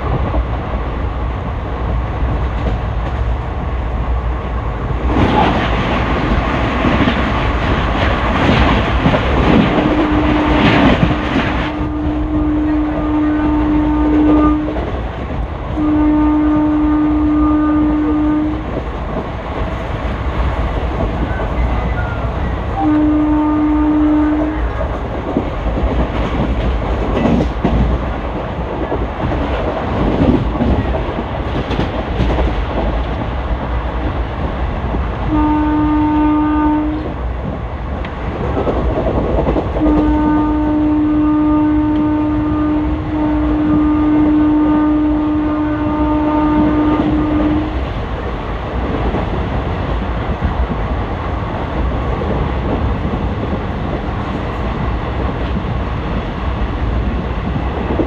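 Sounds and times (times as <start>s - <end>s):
train rumble and wheel clatter: 0.0s - 58.0s
locomotive horn blasts: 9.8s - 11.0s, 11.6s - 14.8s, 15.8s - 18.7s, 21.6s - 24.8s, 35.3s - 37.1s, 39.8s - 47.8s.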